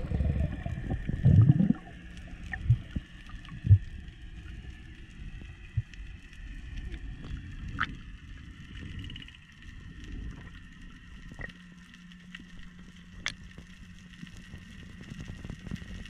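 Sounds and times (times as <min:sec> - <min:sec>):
low steady hum: 0:00.0 - 0:16.0
underwater rumble of moving water: 0:00.0 - 0:16.0.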